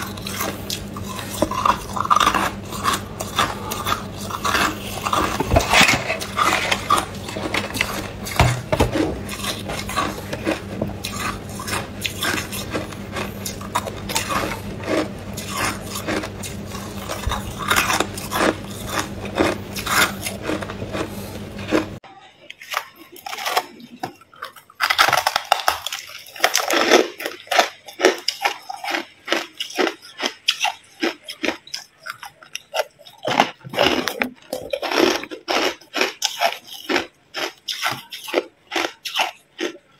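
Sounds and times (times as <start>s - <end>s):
low steady hum: 0.0s - 29.2s
ice being chewed: 0.0s - 39.9s.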